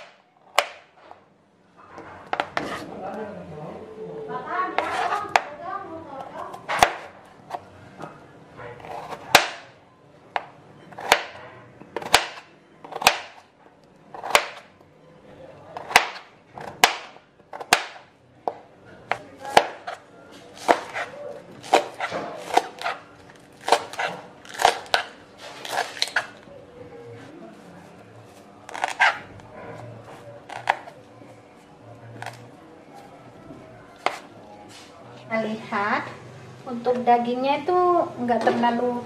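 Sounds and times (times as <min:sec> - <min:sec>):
knife chopping on cutting board: 0:06.7 - 0:07.1, 0:10.4 - 0:11.4, 0:12.0 - 0:13.4, 0:14.2 - 0:14.6, 0:15.8 - 0:18.0, 0:19.1 - 0:20.0, 0:20.6 - 0:23.0.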